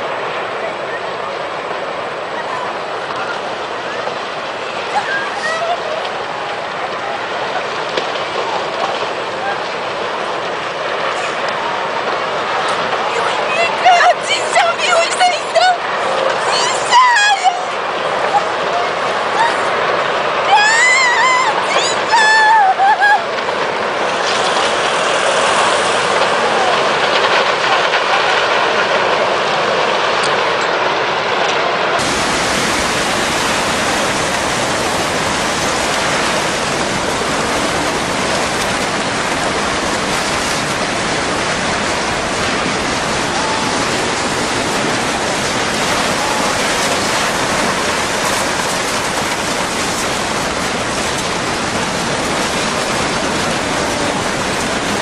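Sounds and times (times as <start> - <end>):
floodwater rushing: 0.0 - 55.0
deep rumble: 22.4 - 55.0.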